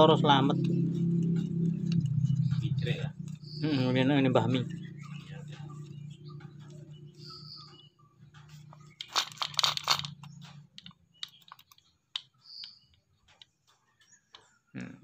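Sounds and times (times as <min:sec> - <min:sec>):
clicking rattles: 0:08.3 - 0:14.4
small plastic clicks and knocks: 0:08.4 - 0:14.5.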